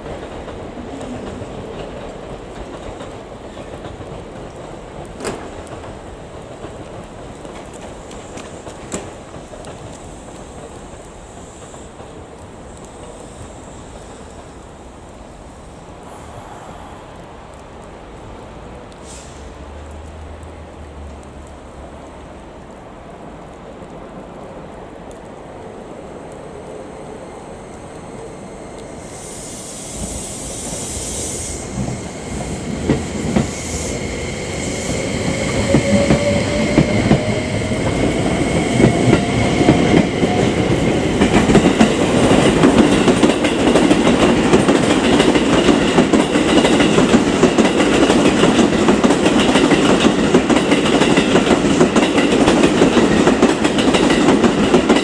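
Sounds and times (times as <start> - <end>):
train wheels clacking over rail joints: 0.0 - 13.2, 35.2 - 55.0
air hiss: 10.0 - 17.5, 19.0 - 19.6, 28.6 - 41.1.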